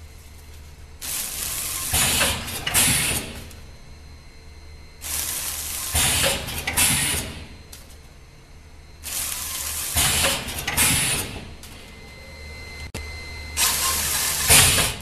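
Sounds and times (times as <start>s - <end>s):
low machine hum: 0.0s - 15.0s
packing machine clattering and hissing: 0.3s - 3.7s, 5.0s - 8.0s, 9.0s - 12.0s, 13.6s - 15.0s.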